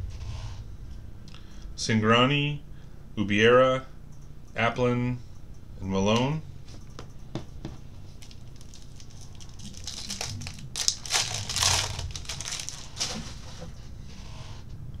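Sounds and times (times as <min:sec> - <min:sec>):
foil wrapper tearing and crinkling: 0:08.2 - 0:13.4.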